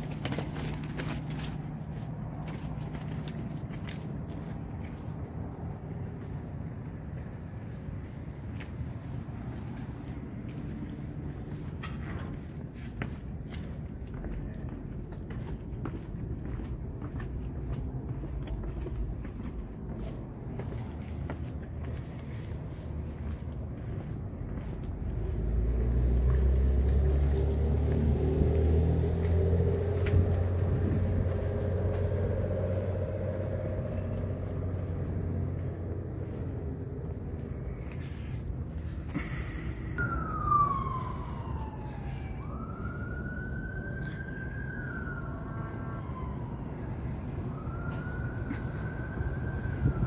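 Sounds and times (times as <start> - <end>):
vehicle engine rumbling: 0.0 - 50.0
siren wailing: 39.2 - 50.0.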